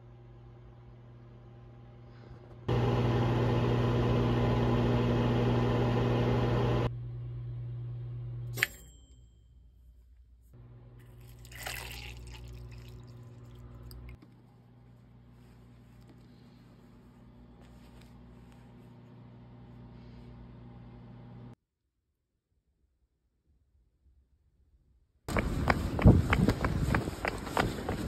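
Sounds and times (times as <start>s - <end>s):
appliance humming: 0.0s - 9.0s, 10.6s - 21.6s.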